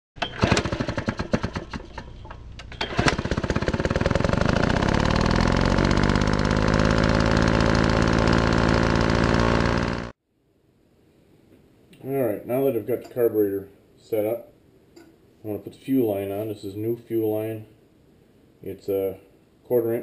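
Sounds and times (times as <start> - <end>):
engine sputtering and running fast: 0.3 - 2.2, 2.8 - 10.1.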